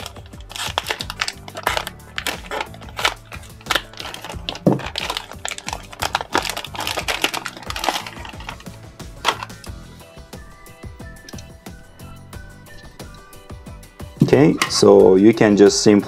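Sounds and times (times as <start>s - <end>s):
plastic bag crinkling: 0.0s - 9.7s.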